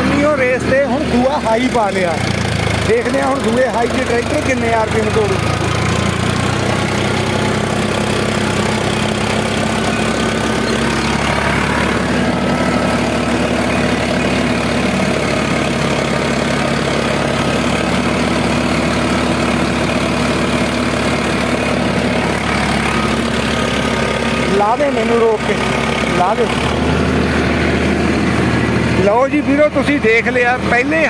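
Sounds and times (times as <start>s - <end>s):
tractor diesel engine running: 0.0s - 31.0s.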